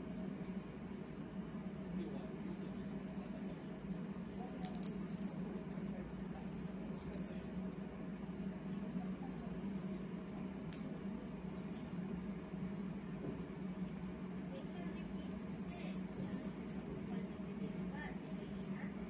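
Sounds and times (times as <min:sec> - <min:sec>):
cat toy wand rattling: 0:00.0 - 0:00.8, 0:03.9 - 0:10.9, 0:14.3 - 0:18.7
steady low hum: 0:00.0 - 0:19.0.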